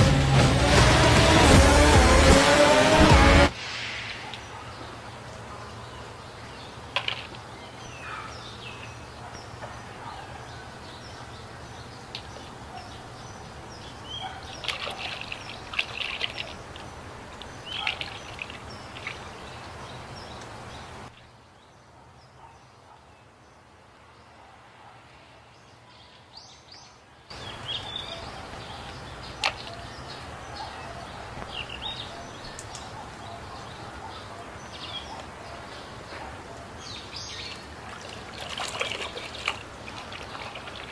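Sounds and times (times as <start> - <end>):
water splashing: 14.2 - 21.1, 28.3 - 30.4, 36.9 - 40.9
bird chirps: 26.0 - 37.7.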